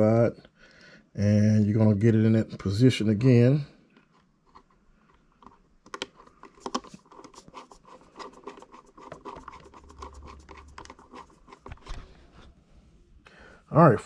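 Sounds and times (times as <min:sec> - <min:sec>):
screwdriver clicks and scratches: 0:05.4 - 0:12.0.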